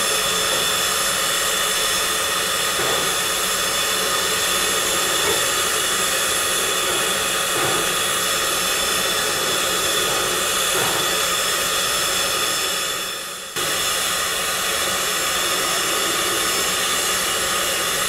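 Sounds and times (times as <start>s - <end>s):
steam locomotive hissing: 0.0s - 18.0s.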